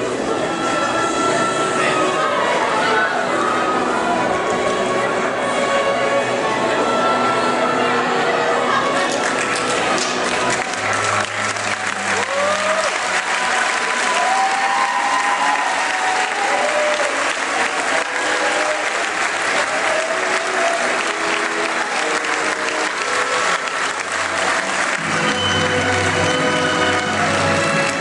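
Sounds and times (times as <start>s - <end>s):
faint orchestral string notes: 0.0s - 14.4s
audience applauding: 9.0s - 28.0s
people whooping: 10.7s - 24.9s.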